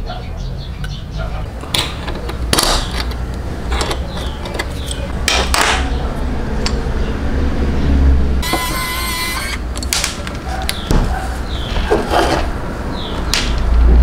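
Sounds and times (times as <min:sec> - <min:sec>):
plastic parts clicking and scraping: 0:01.6 - 0:05.9.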